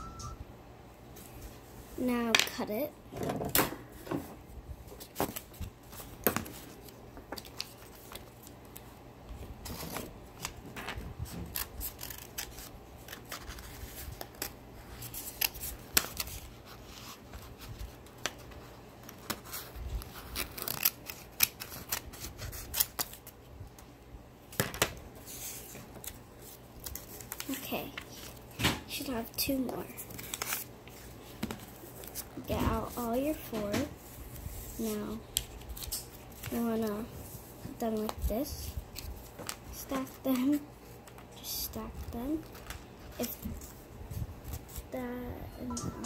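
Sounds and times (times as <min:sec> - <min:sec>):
scissors cutting paper: 0:11.3 - 0:16.4, 0:19.1 - 0:23.2.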